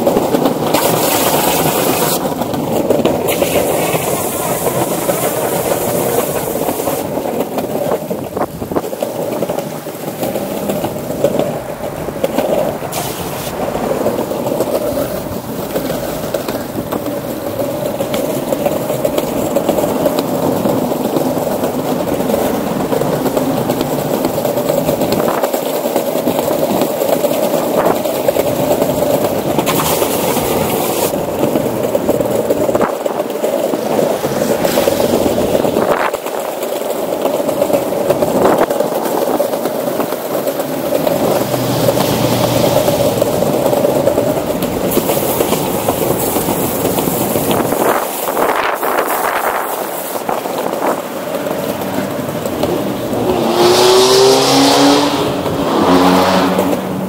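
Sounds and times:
skateboard wheels rolling on wood: 0.0s - 57.0s.

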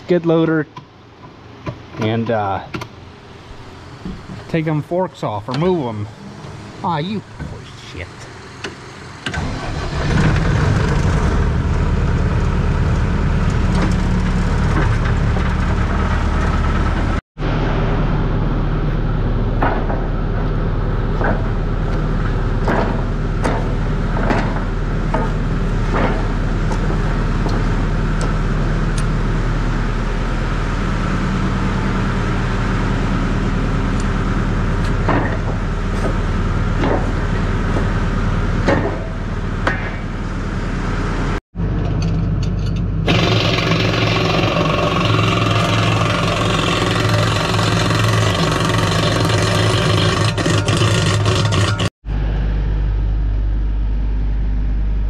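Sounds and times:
metal clanks and knocks: 21.1s - 28.4s, 34.8s - 38.0s, 38.6s - 40.1s, 41.7s - 44.2s, 45.0s - 51.9s
skid loader engine idling: 42.8s - 51.9s.

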